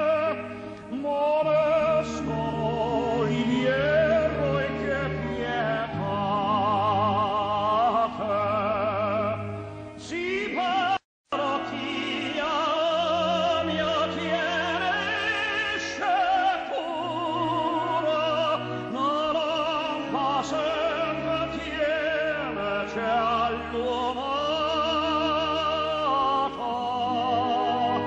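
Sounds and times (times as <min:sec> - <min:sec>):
orchestral accompaniment: 0:00.0 - 0:10.8
operatic voice singing: 0:00.0 - 0:28.0.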